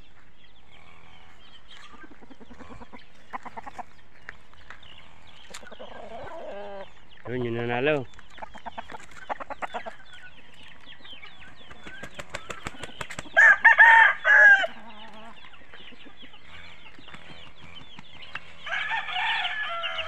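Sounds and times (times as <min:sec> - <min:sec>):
fowl clucking and chirping: 0:00.0 - 0:20.0
rooster crowing: 0:13.4 - 0:15.0, 0:18.6 - 0:20.0.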